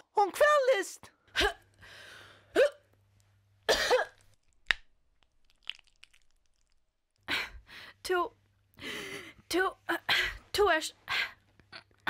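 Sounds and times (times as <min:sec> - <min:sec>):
loud hacking cough: 0:03.7 - 0:04.2.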